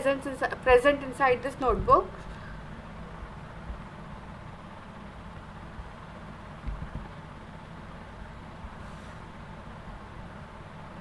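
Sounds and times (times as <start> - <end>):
room noise hiss and rumble: 0.0 - 11.0.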